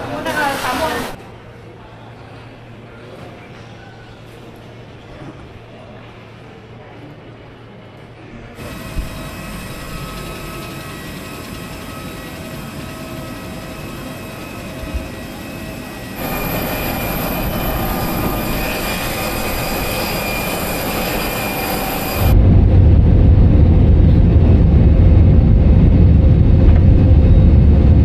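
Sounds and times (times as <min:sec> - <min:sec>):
airliner engines whining: 0:08.6 - 0:28.0.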